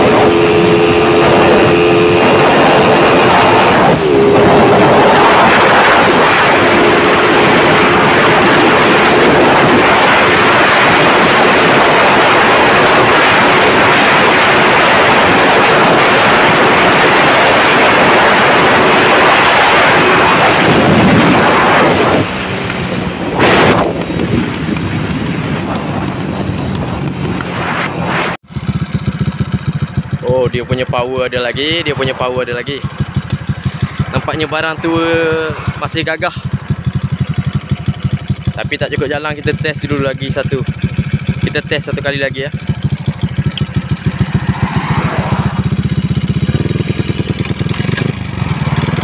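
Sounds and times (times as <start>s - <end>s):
wind noise on microphone: 0.0s - 29.5s
motorcycle engine at high revs: 0.0s - 49.0s.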